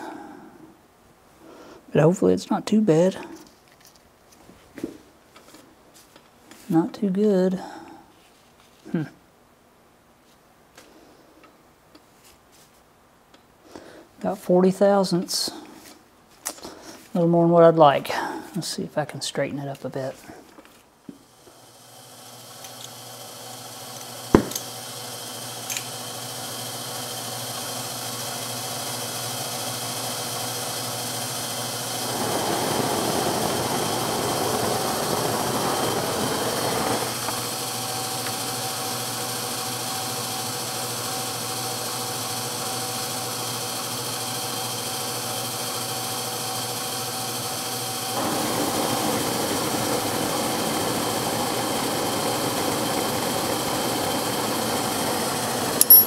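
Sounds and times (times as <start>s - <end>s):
torch flame hissing: 21.3s - 26.7s, 30.5s - 39.0s, 47.0s - 55.9s.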